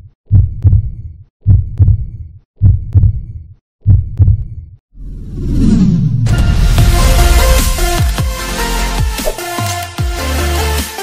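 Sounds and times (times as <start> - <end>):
heartbeat thumps: 0.3 - 4.6
rising whoosh: 5.0 - 7.8.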